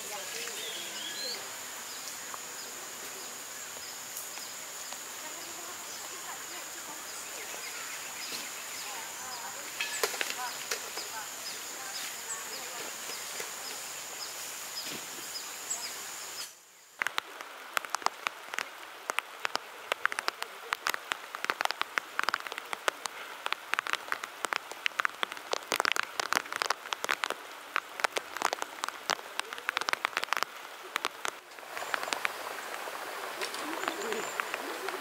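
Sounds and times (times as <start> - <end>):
high insect drone: 0.0 - 17.0
rain drops ticking: 0.0 - 35.0.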